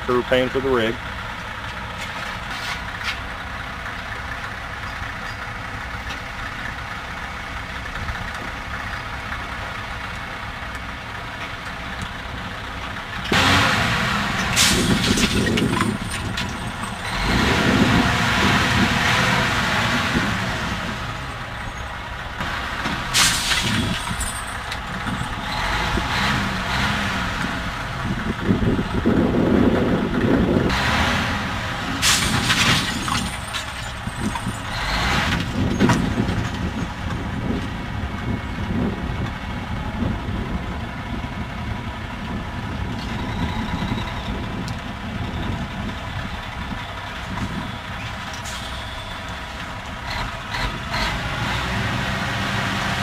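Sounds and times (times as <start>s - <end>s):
diesel truck engine idling: 0.0s - 32.0s, 33.0s - 51.6s.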